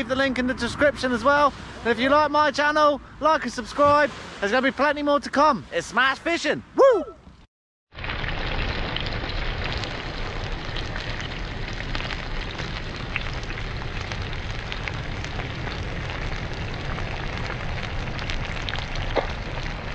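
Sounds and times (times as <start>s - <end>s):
fish sizzling in frying pan: 7.9s - 19.9s
low steady rumble: 8.2s - 19.9s.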